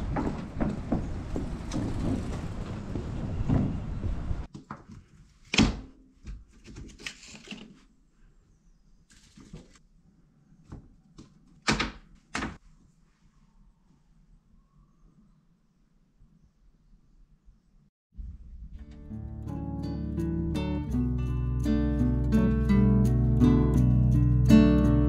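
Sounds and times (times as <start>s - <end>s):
wind rumbling on microphone: 0.0s - 4.5s, 18.2s - 19.0s.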